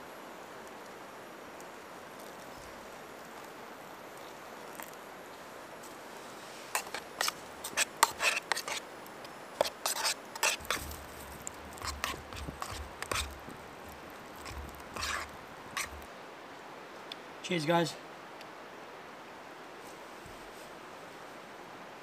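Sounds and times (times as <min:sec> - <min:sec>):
metal spoon scraping metal cup: 0:06.7 - 0:08.8, 0:09.6 - 0:16.0.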